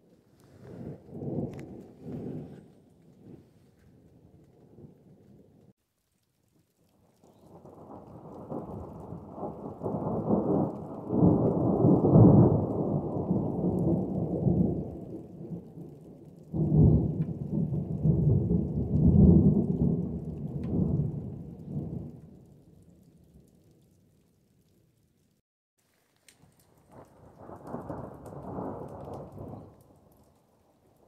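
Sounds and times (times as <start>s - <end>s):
thunder rumbling: 0.0s - 5.7s, 7.5s - 15.9s, 16.5s - 22.4s.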